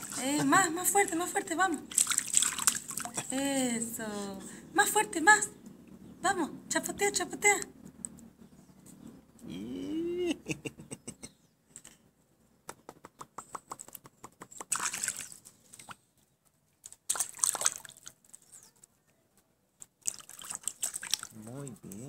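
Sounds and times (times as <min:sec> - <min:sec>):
water splashing in a pool: 0:00.0 - 0:00.4, 0:01.8 - 0:03.4, 0:14.6 - 0:15.9, 0:16.8 - 0:18.5, 0:19.9 - 0:21.4
short voice sound: 0:09.4 - 0:10.5.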